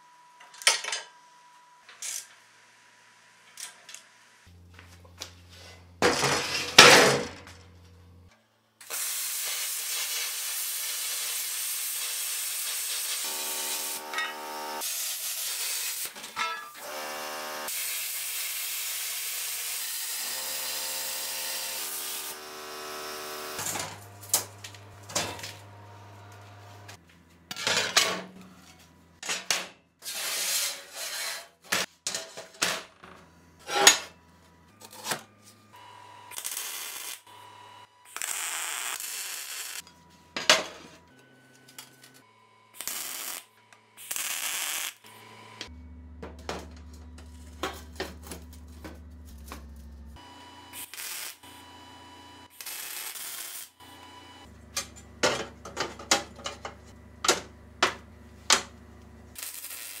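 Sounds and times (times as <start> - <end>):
welding crackle: 8.8 - 16.3, 17.6 - 27.0, 36.3 - 37.3, 38.1 - 39.8, 42.8 - 45.1, 50.8 - 51.6, 52.5 - 53.8, 59.3 - 60.0
metal cutting hiss: 8.9 - 16.1.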